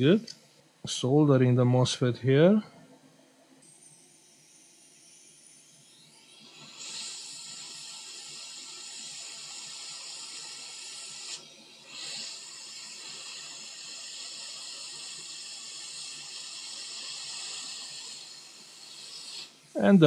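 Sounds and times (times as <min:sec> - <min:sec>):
hot air blower hissing: 0:05.8 - 0:20.0.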